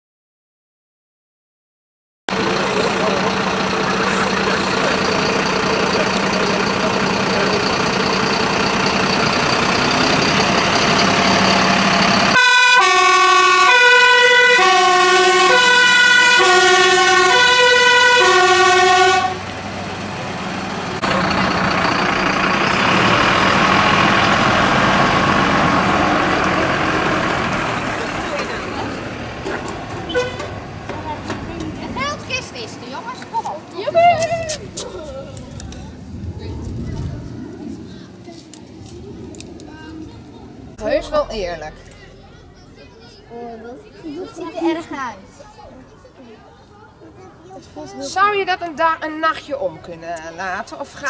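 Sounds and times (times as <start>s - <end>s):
fire engine driving: 2.3s - 51.0s
road noise: 2.3s - 51.0s
two-tone siren: 12.3s - 19.4s.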